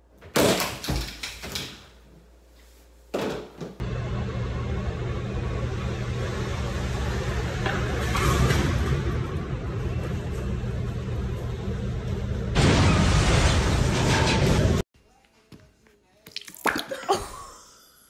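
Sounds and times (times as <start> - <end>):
car rumbling in parking garage: 3.8 - 14.8.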